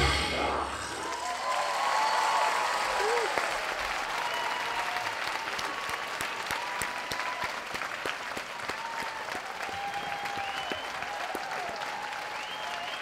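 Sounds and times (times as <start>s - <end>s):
audience applauding: 0.8s - 13.0s
whistles: 9.8s - 11.1s, 12.3s - 13.0s.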